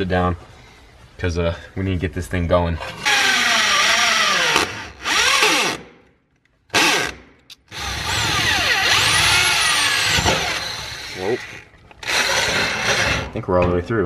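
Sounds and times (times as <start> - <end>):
electric drill boring metal: 3.0 - 5.8, 7.7 - 13.2.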